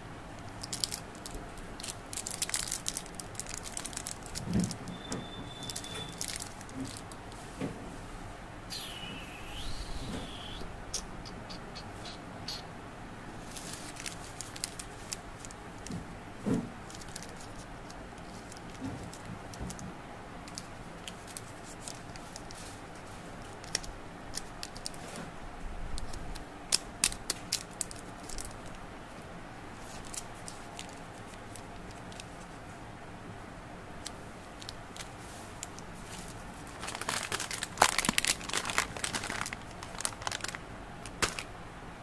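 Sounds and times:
candy wrappers crinkling: 0.4s - 7.3s, 13.5s - 16.0s, 16.8s - 19.8s, 20.4s - 25.0s, 26.0s - 28.8s, 29.8s - 32.6s, 34.6s - 41.5s.

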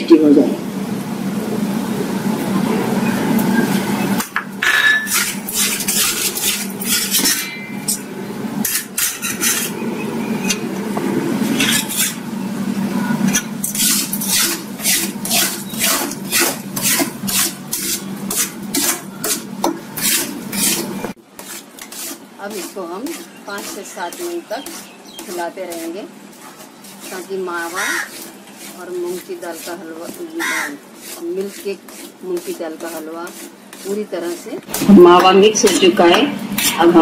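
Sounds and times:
metal spatula scraping a pan: 4.8s - 10.7s, 11.4s - 12.2s, 13.2s - 35.0s.

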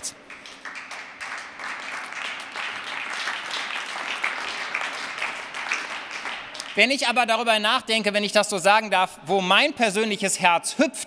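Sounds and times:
applause: 0.0s - 7.5s.

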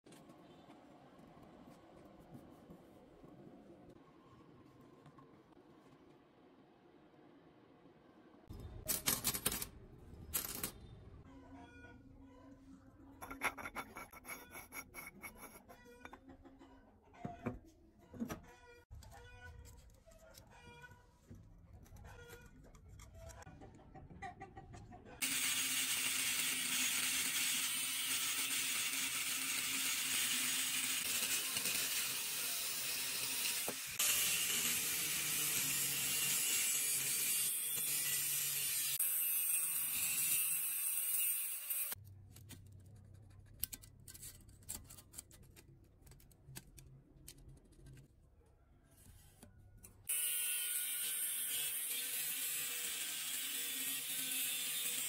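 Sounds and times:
angle grinder cutting steel: 25.2s - 42.0s, 50.1s - 55.0s.

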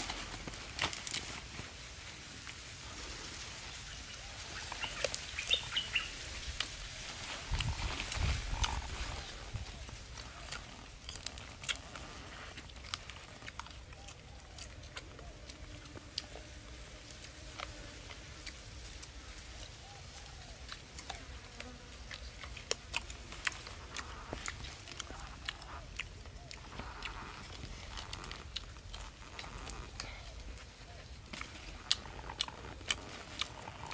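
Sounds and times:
person chewing: 6.5s - 19.2s, 20.2s - 33.9s.

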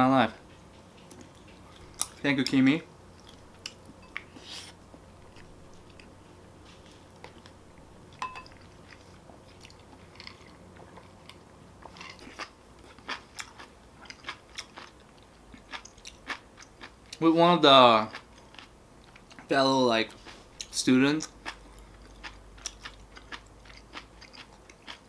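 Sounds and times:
person chewing with mouth noises: 20.2s - 25.0s.

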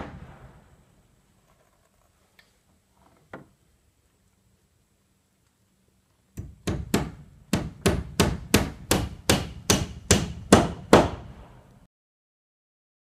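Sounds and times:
hammer driving nails into wood: 6.4s - 11.4s.

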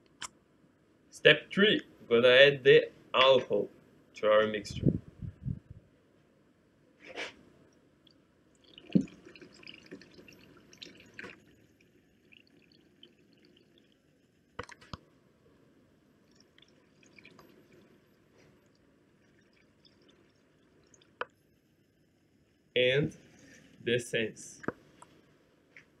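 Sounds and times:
liquid pouring into bucket: 8.6s - 14.8s, 16.2s - 21.2s.

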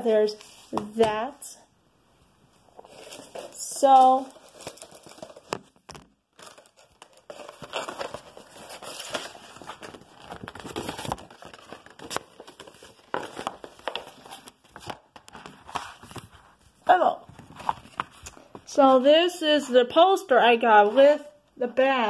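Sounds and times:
paper and packaging crinkling: 2.8s - 16.7s, 17.3s - 18.8s.

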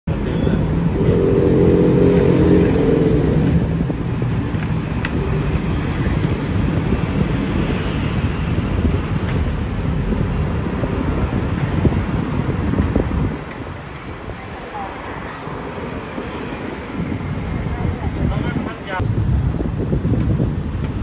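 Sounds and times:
street traffic rumble: 0.0s - 21.0s
vehicle engine passing close: 0.2s - 8.7s.

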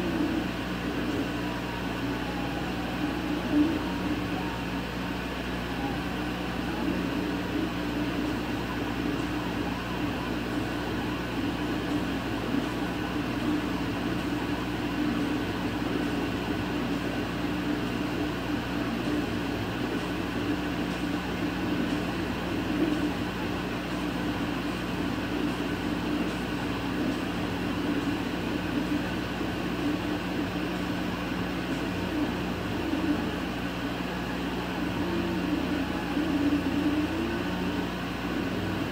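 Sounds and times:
laser cutter hum and whir: 0.0s - 38.9s.

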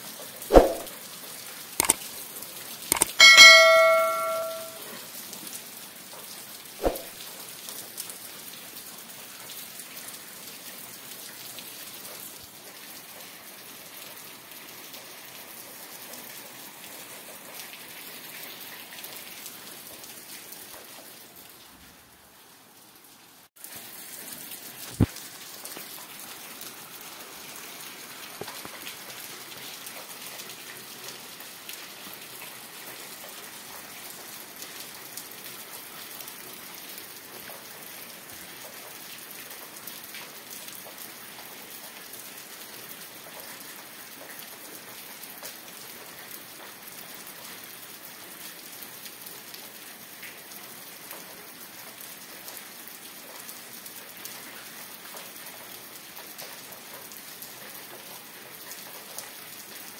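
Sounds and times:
sharp click: 0.5s - 0.9s, 2.9s - 4.8s
heavy rain: 5.1s - 59.9s.

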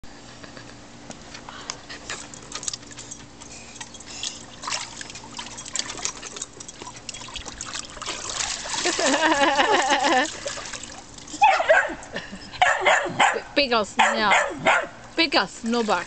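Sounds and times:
water splashing in a pool: 4.0s - 11.5s.

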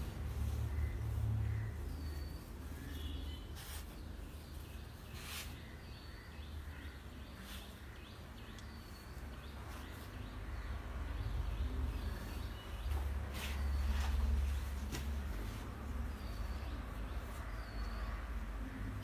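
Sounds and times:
birds chirping: 0.0s - 19.0s
leafy sprigs rustling: 0.0s - 19.0s.

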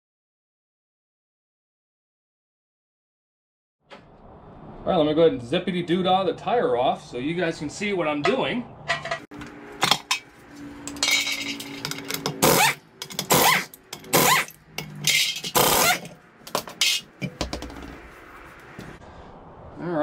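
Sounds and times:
wheel scraping off hub: 9.0s - 18.9s
air impact wrench bursts: 12.2s - 14.6s, 15.4s - 16.1s.

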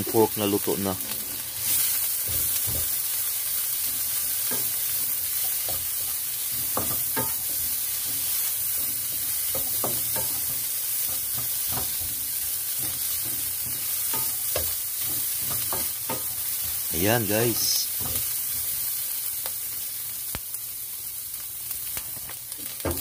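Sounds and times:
meat sizzling in a frying pan: 0.0s - 23.0s
spatula scraping a pan: 1.4s - 16.9s.

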